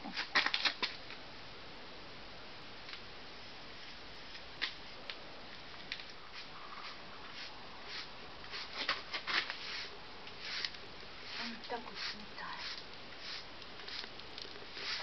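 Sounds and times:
hand brush sweeping mortar: 6.3s - 8.8s, 9.4s - 14.1s, 14.7s - 15.0s.

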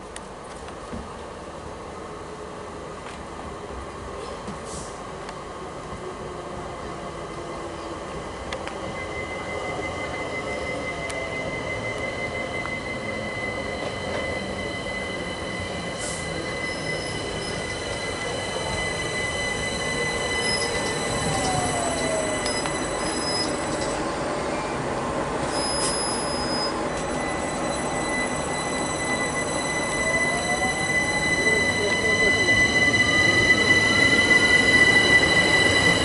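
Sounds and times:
train running noise: 0.0s - 36.0s
train wheel squeal: 7.4s - 36.0s.

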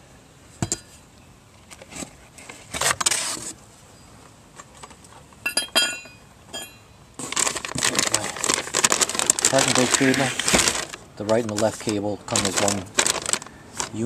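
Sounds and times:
ringing metallic clinks: 5.4s - 6.9s
packaging rustling: 7.2s - 14.0s.

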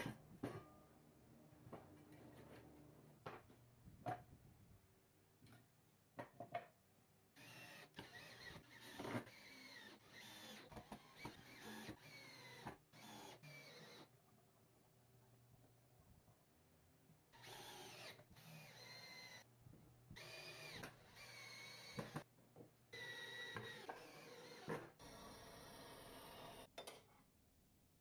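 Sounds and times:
electric drill running: 17.4s - 19.4s, 20.2s - 22.2s, 23.0s - 26.7s.

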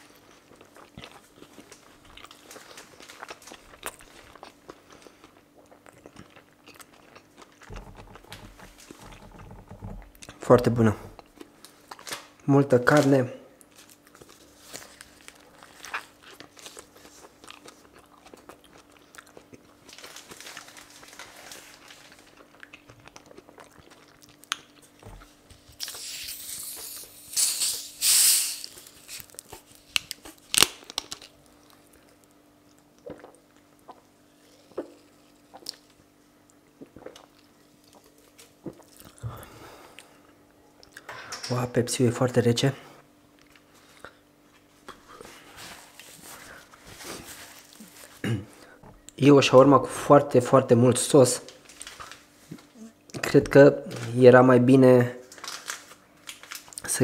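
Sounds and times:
person biting and chewing food: 0.0s - 10.4s, 13.7s - 20.6s, 21.5s - 39.2s
paper wrapper rustling: 1.7s - 4.2s, 19.8s - 22.5s, 51.5s - 52.6s, 55.2s - 56.8s.

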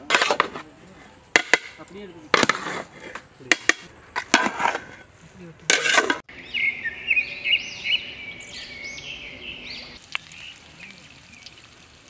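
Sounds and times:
birds chirping: 4.9s - 12.0s
hot oil frying leaves in a wok: 10.0s - 12.0s.

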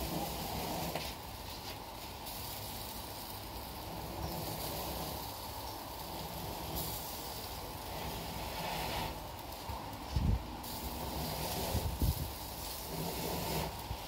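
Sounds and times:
wind buffeting microphone: 10.1s - 10.6s, 11.4s - 12.4s.

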